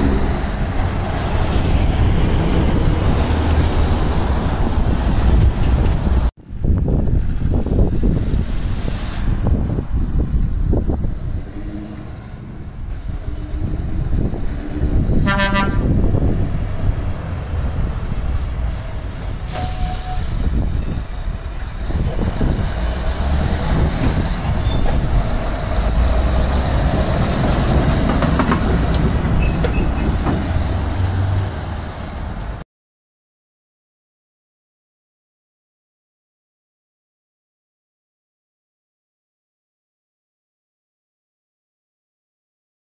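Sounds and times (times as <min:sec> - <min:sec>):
truck horn toot: 0:15.2 - 0:16.0.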